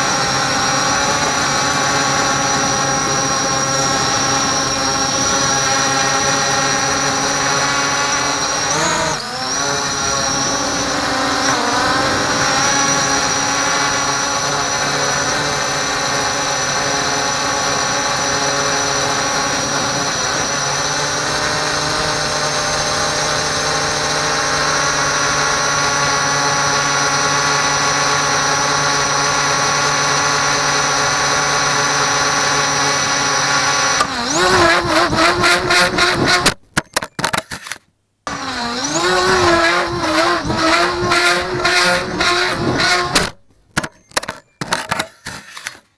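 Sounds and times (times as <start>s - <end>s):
drone propellers whining: 0.0s - 36.6s, 38.3s - 43.4s.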